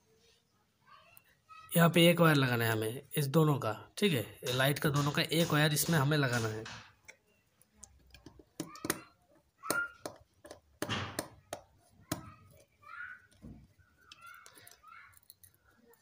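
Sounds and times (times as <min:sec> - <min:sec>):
screwdriver clicking and scraping: 0:09.7 - 0:16.0.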